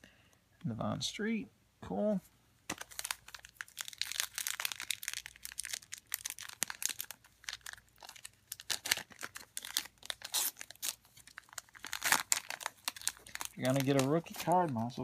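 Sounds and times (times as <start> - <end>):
wrapper tearing and crinkling: 2.7 - 15.0.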